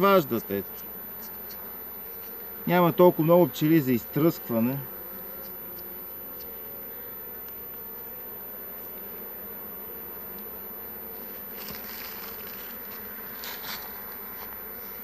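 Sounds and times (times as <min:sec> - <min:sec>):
honeybees buzzing: 0:00.0 - 0:15.0
scraping rustle: 0:11.1 - 0:15.0.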